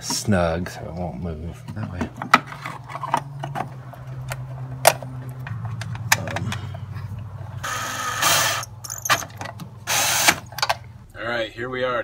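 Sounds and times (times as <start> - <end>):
low steady hum: 0.0 - 12.0
cordless drill running: 7.6 - 9.0, 9.9 - 10.5.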